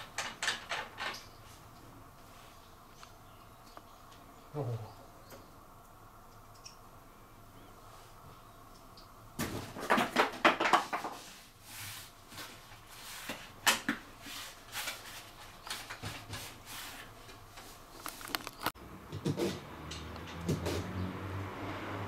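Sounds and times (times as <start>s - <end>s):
objects clicking and rustling: 17.2s - 18.8s.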